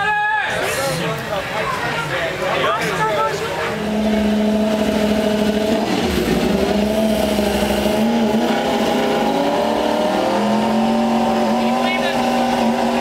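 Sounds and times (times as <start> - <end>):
motorcycle engine at high revs: 3.5 - 13.0
low rumble: 3.6 - 13.0.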